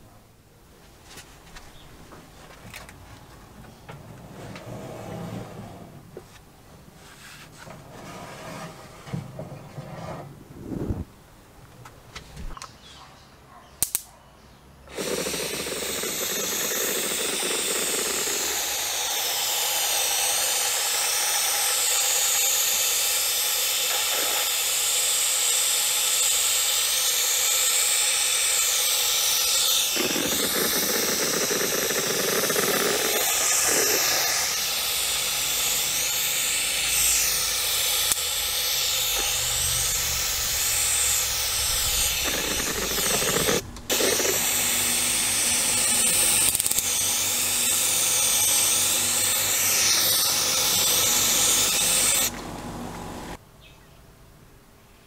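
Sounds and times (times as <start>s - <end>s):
sharp click: 13.8s - 14.1s
spray paint can hissing: 15.0s - 44.8s, 47.8s - 52.3s.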